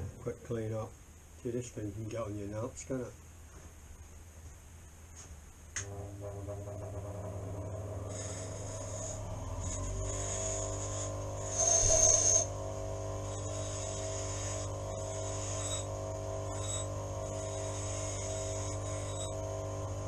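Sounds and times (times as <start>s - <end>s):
grinder motor humming: 5.8s - 20.0s
rasping grind: 8.1s - 12.5s, 13.2s - 19.4s.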